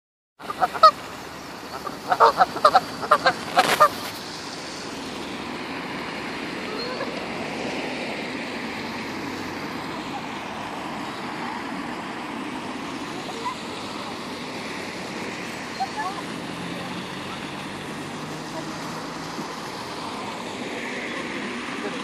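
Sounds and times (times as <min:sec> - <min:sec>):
geese honking: 0:00.4 - 0:01.0, 0:01.6 - 0:04.1
steady rushing noise: 0:00.4 - 0:22.0.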